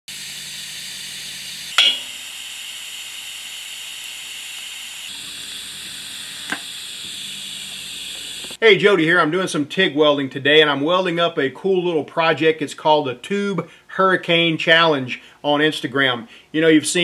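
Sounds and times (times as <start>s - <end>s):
welding arc hissing: 0.1s - 8.6s.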